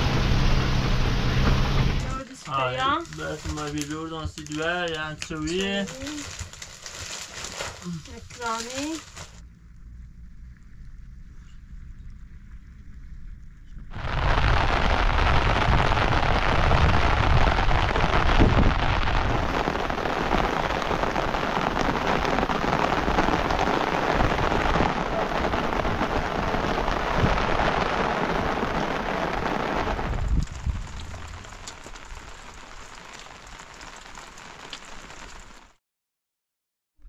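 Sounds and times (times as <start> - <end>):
low rumble: 0.0 - 3.2, 7.8 - 33.0
heavy rain pouring: 0.0 - 9.4, 13.9 - 35.8.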